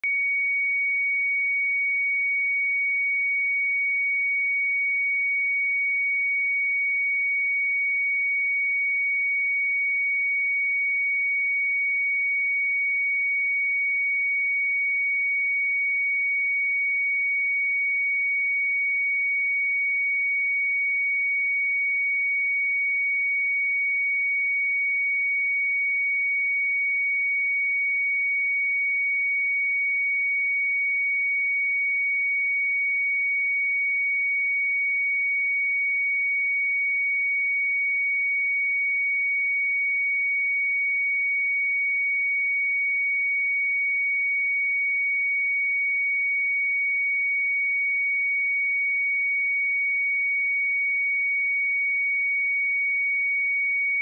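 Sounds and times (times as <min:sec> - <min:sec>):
sine-wave test tone: 0:00.0 - 0:54.0.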